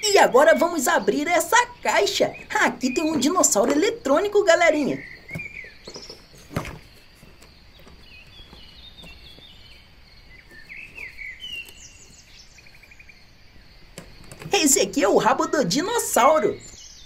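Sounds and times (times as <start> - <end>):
faint birds chirping: 0.0 - 17.0.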